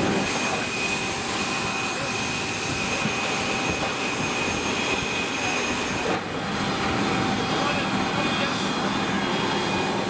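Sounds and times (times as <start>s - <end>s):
jet turbine running: 0.0s - 10.0s.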